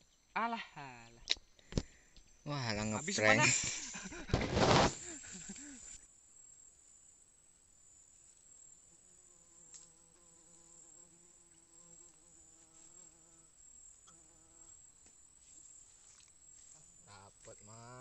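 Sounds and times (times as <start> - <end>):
flying insect buzzing: 2.7 - 6.0, 7.9 - 16.7
faint ticks: 9.6 - 10.3, 11.4 - 13.1.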